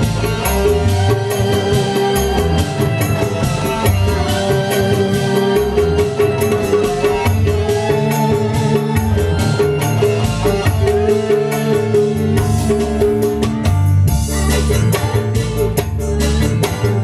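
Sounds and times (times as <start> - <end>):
bass line: 0.0 - 17.0
hand drum rhythm: 0.0 - 17.0
held keyboard notes: 0.0 - 17.0.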